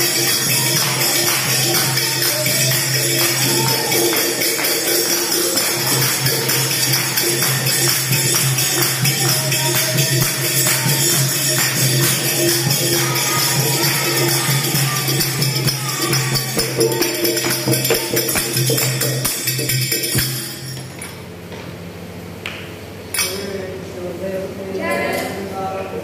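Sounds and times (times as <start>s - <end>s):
hand claps: 0.0s - 14.5s, 15.2s - 20.5s
group chanting a devotional song: 0.0s - 20.4s
jingling percussion: 0.0s - 21.5s.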